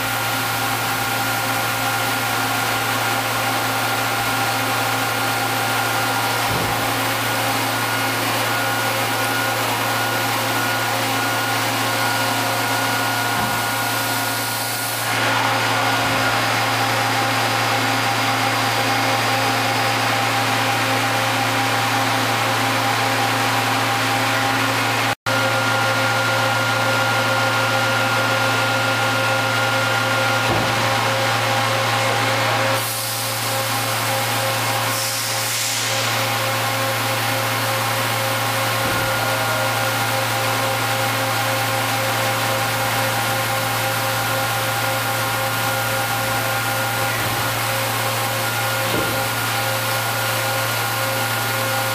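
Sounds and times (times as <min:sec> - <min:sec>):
machining center humming and whining: 0:00.0 - 0:51.9
loud hiss: 0:34.8 - 0:36.5.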